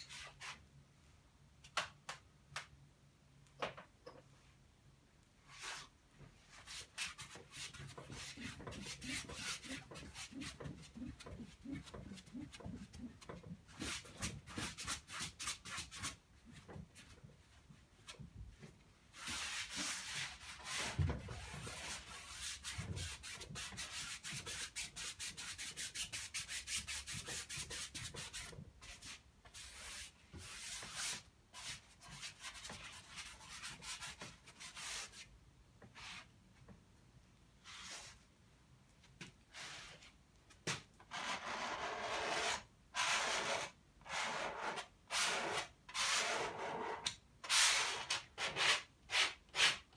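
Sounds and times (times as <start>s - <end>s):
paintbrush scrubbing on canvas: 6.5s - 16.2s.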